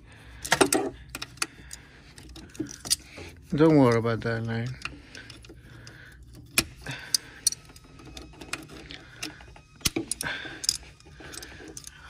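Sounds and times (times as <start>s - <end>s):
pliers clicking and scraping on clamp: 0.4s - 12.0s.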